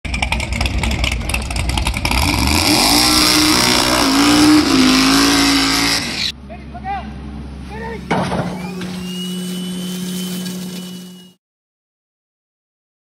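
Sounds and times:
drag racing car engine revving: 0.1s - 6.3s.

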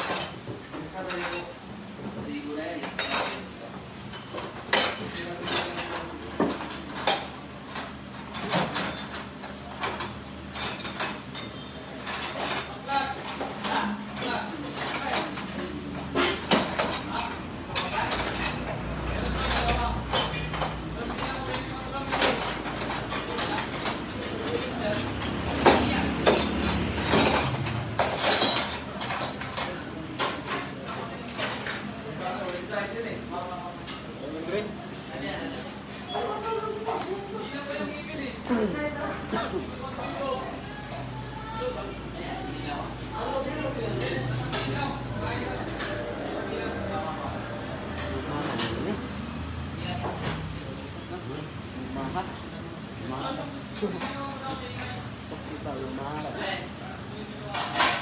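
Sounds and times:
metal tools clanking: 1.0s - 1.6s, 2.8s - 30.7s, 35.9s - 37.0s.

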